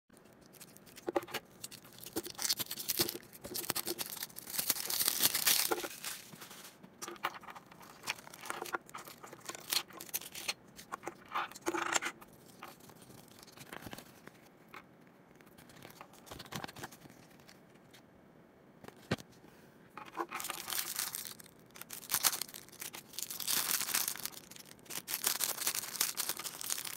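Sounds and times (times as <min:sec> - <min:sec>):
plastic capsule clicking and scraping: 0:00.2 - 0:06.1, 0:07.0 - 0:17.6, 0:20.0 - 0:21.4
plastic wrap and paper crinkling: 0:00.2 - 0:11.7, 0:12.3 - 0:14.4, 0:20.0 - 0:26.9.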